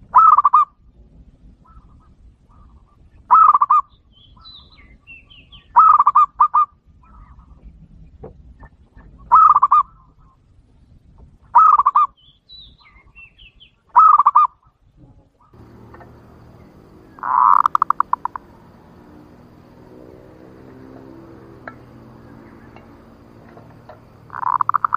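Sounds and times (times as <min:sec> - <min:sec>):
dove cooing trills: 0:00.1 - 0:00.6, 0:03.3 - 0:03.8, 0:05.8 - 0:07.3, 0:09.3 - 0:09.9, 0:11.6 - 0:12.1, 0:14.0 - 0:14.5, 0:15.6 - 0:24.9.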